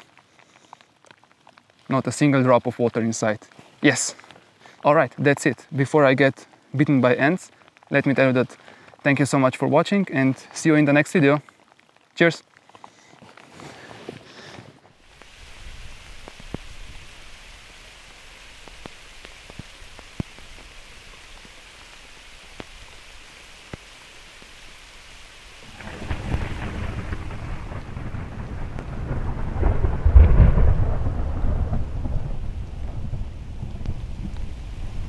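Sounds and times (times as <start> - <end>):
close raindrops ticking: 0.0 - 35.0
steady rain: 0.0 - 35.0
deep roll of thunder: 25.6 - 35.0.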